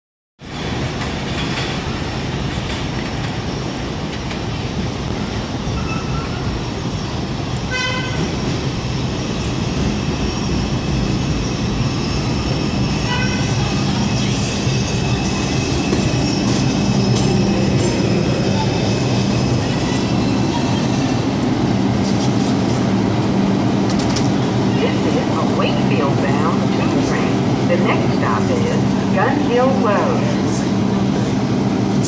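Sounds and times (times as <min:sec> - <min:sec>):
subway train rumble: 0:00.4 - 0:32.0
train horn toots: 0:07.7 - 0:08.3, 0:13.1 - 0:13.6.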